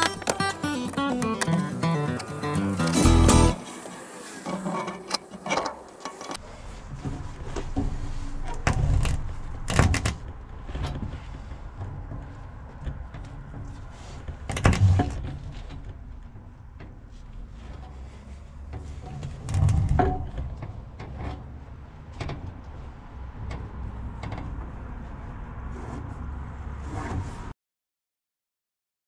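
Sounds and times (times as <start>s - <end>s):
rigging clicks and rattles: 4.5s - 26.2s.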